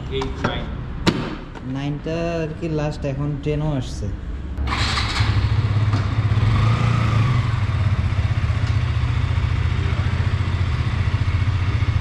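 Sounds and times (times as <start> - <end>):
motorcycle engine idling: 4.6 - 12.0.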